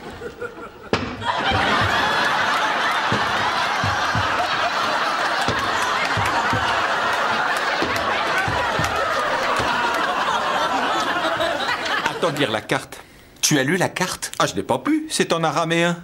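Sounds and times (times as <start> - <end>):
studio audience laughing: 0.0 - 12.7.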